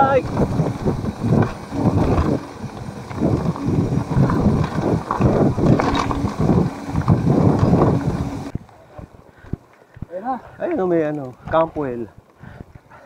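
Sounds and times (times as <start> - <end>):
bike rattling and knocking: 0.0 - 8.5
wind buffeting microphone: 0.0 - 13.0.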